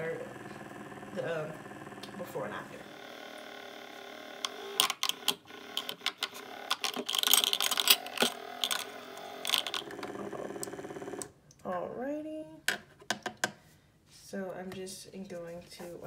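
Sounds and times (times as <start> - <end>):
small electric motor humming: 0.0 - 11.3.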